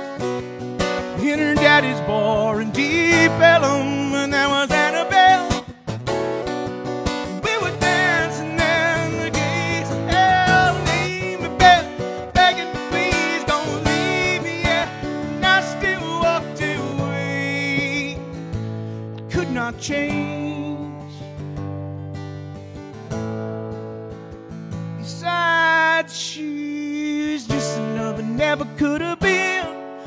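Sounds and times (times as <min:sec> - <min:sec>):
acoustic guitar strumming: 0:00.0 - 0:30.0
bending melody line: 0:00.8 - 0:17.9.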